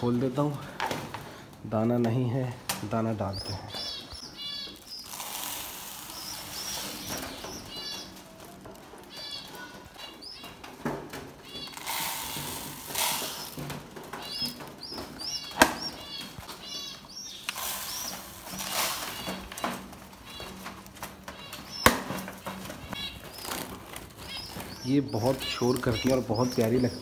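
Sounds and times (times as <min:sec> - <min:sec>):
small birds chirping: 0:01.2 - 0:27.0
grain pouring into plastic feeder: 0:05.0 - 0:07.2, 0:11.7 - 0:13.6, 0:17.5 - 0:19.3.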